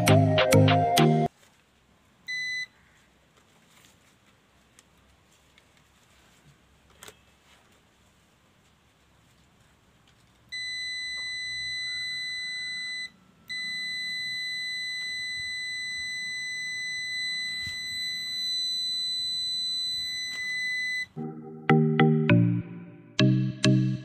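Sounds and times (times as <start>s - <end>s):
steady high continuity beep: 2.3s - 2.7s, 10.6s - 21.2s.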